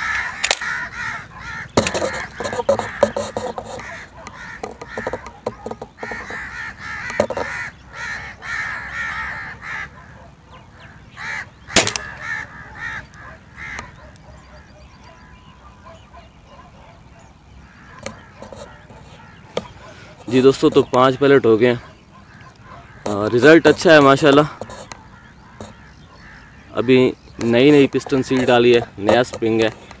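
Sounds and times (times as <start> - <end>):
birds calling: 0.0 - 30.0
air rifle shot: 11.7 - 12.2.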